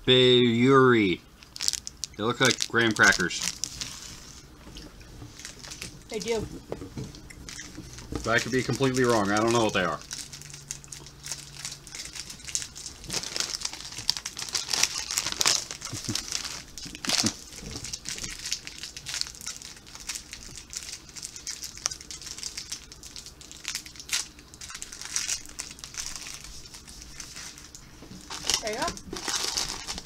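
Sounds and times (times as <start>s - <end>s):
plastic wrapper crinkling: 1.4s - 30.0s.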